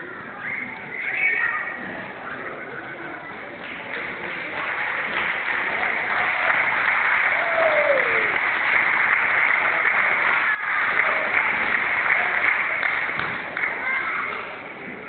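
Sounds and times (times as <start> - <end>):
audience applauding: 3.6 - 14.2.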